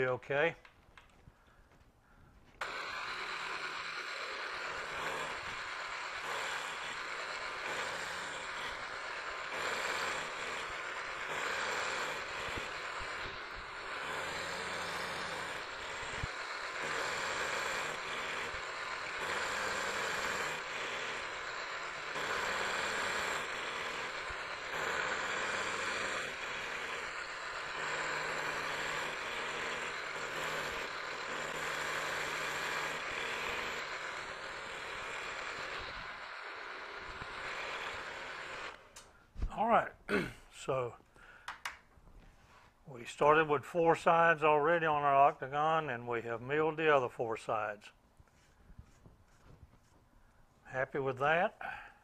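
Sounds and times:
end mill cutting metal: 2.6 - 39.1
milling motor hum: 2.6 - 39.6.

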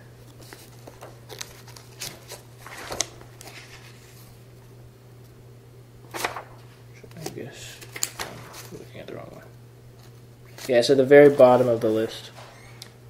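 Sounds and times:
steady low hum: 0.0 - 13.0
book pages turning: 0.2 - 4.4, 6.1 - 9.0, 10.0 - 12.1
crisp paper rustles: 0.3 - 4.4.

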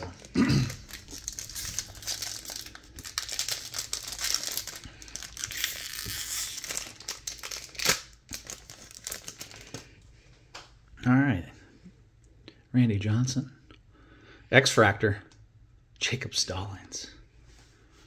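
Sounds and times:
foil wrapper tearing and crinkling: 0.2 - 9.8.

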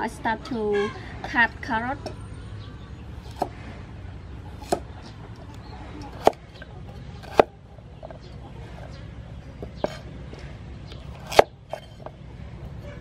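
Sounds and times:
cleaver chopping on wooden block: 3.2 - 3.6, 4.5 - 4.9, 6.1 - 6.4, 7.2 - 8.2, 11.0 - 11.9.

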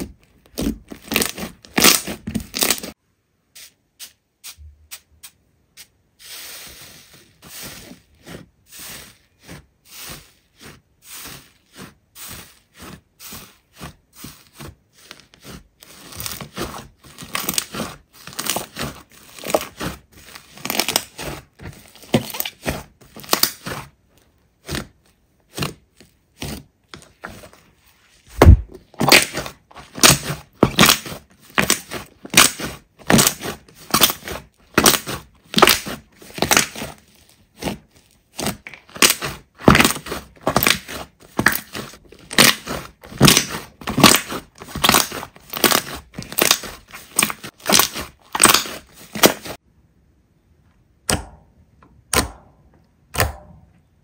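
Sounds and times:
slime crackling and popping: 0.4 - 3.0, 15.8 - 23.8, 28.4 - 37.7, 38.3 - 49.6
heavy thud: 28.3 - 28.8.

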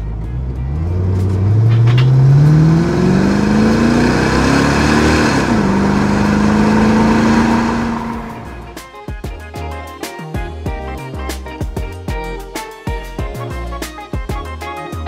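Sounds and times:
car engine accelerating: 0.0 - 8.9.

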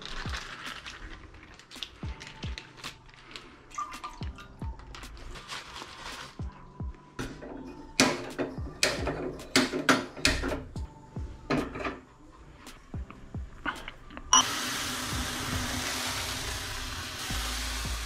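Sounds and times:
gas burner hissing: 14.4 - 18.0.

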